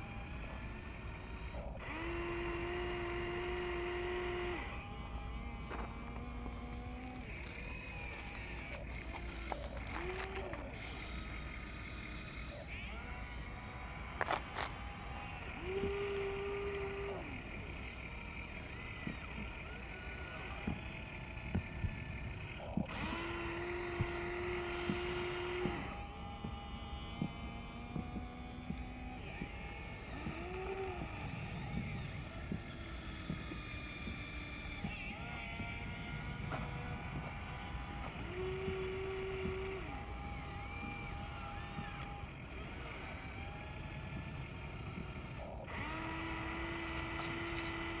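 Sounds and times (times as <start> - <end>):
small electric motors whining: 0.0 - 48.0
small clicks and knocks: 5.5 - 12.8.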